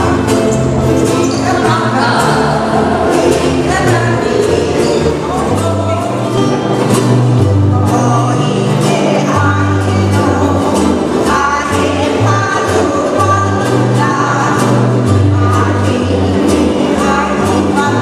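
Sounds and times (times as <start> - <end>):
group of voices singing: 0.0 - 6.2, 7.7 - 18.0
bass line: 0.0 - 18.0
ukuleles strummed: 0.0 - 18.0.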